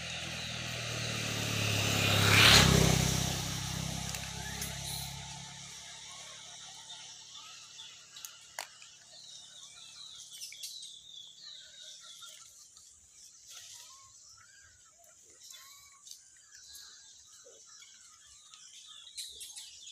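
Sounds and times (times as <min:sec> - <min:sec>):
passing vehicle rumble: 0:00.0 - 0:07.4.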